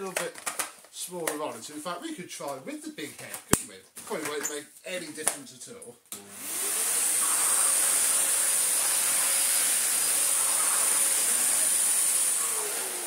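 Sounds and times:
vacuum cleaner running on carpet: 6.3s - 13.0s.

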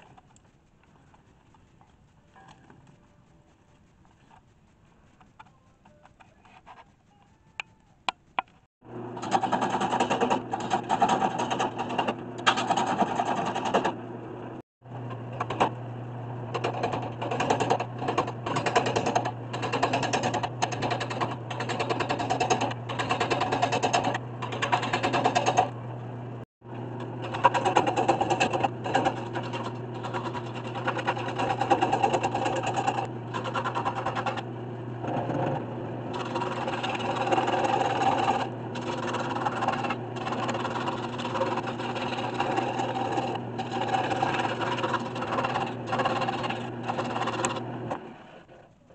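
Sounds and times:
gouge scraping spinning wood: 0.0s - 14.0s, 16.5s - 25.8s, 26.9s - 48.5s
wood lathe motor hum: 26.8s - 48.4s.

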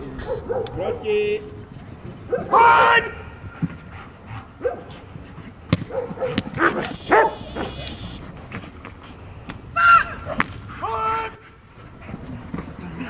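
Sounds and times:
dog barking and yelping: 0.2s - 0.8s, 5.9s - 7.8s.

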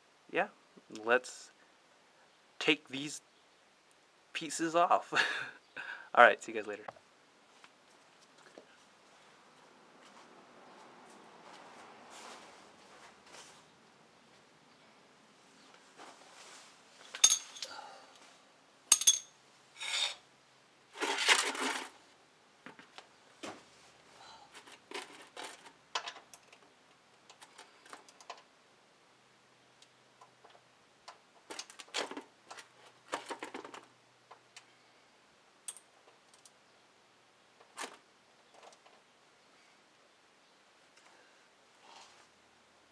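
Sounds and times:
plastic pan scraping on concrete: 20.9s - 22.0s.

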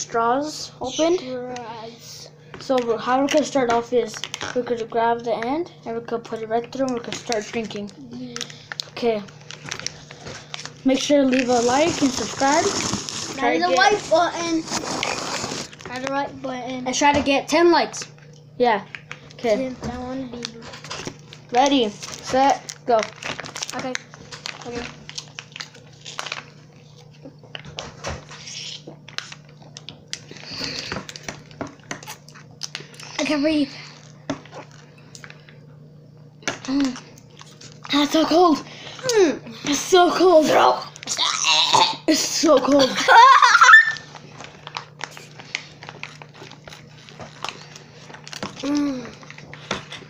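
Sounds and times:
foil drink pouches crinkling: 2.6s - 5.3s, 6.2s - 16.2s, 18.0s - 35.6s, 36.4s - 39.2s, 42.2s - 50.0s
slurping through straws: 11.4s - 15.8s.

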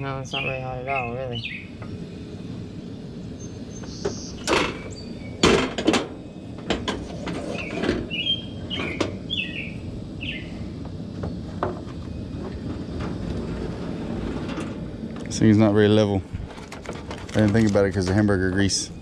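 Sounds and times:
birds chirping: 0.0s - 12.7s
iron griddle clanking on grate: 3.9s - 9.2s, 11.2s - 15.4s, 16.4s - 18.8s.

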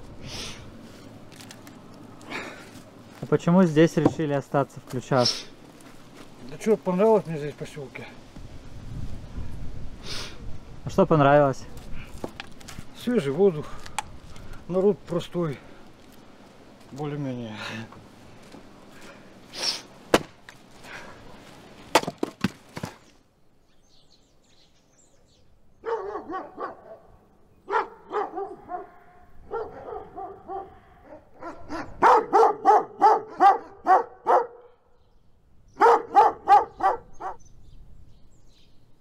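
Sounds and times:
wooden knocks and clacks: 4.0s - 4.2s
dog barking: 25.8s - 34.8s, 35.8s - 37.4s.

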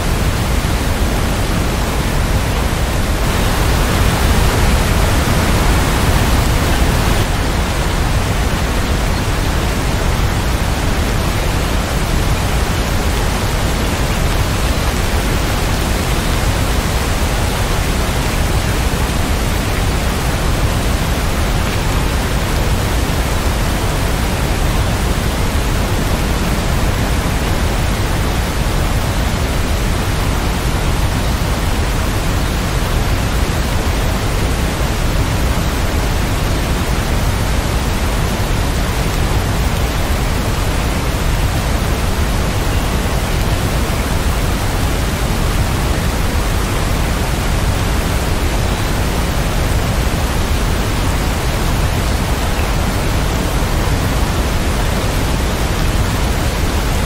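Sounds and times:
heavy rain hiss: 0.0s - 57.0s.

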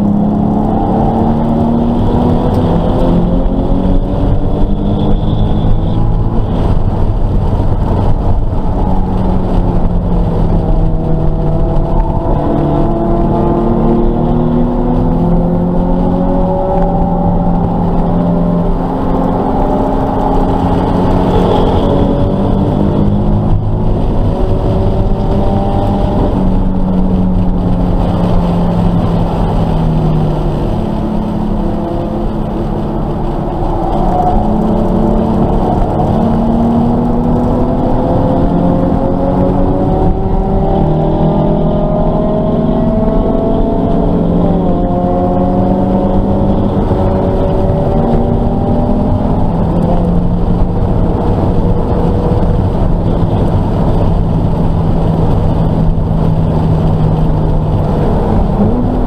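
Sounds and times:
car engine running hard: 0.0s - 59.0s.

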